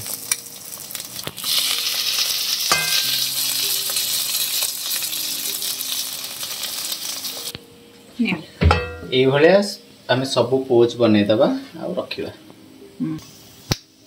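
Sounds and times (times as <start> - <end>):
egg sizzling in hot oil: 0.0 - 7.6.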